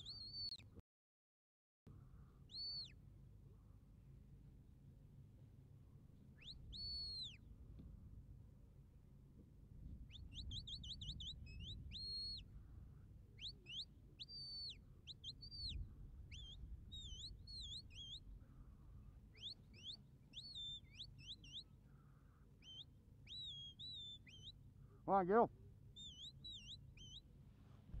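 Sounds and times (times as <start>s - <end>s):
faint shepherd's whistle: 0.0s - 0.6s, 2.5s - 3.0s, 6.4s - 7.4s, 10.1s - 12.5s, 13.4s - 18.2s, 19.3s - 21.7s, 22.6s - 24.6s, 26.0s - 27.3s.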